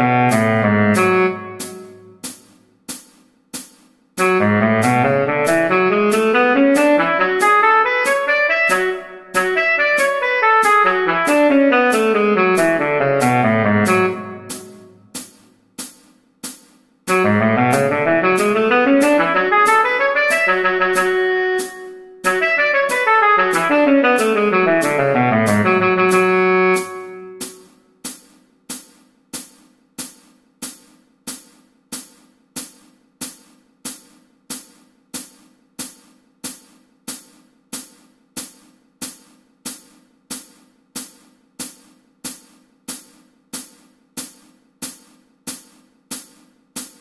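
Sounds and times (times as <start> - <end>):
pop backing track: 0.0 - 2.3, 4.2 - 15.2, 17.1 - 27.7.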